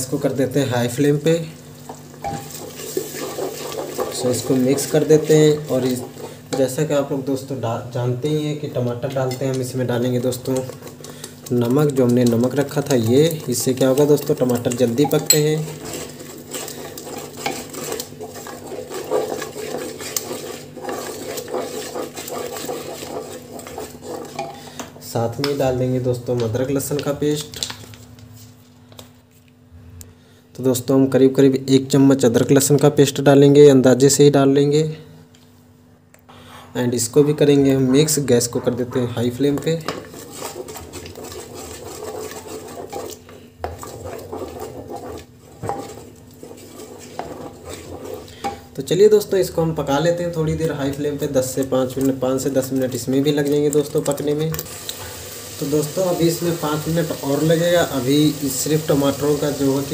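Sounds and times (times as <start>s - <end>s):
wooden spatula scraping a pot: 1.9s - 6.9s, 9.0s - 25.8s, 38.0s - 59.9s.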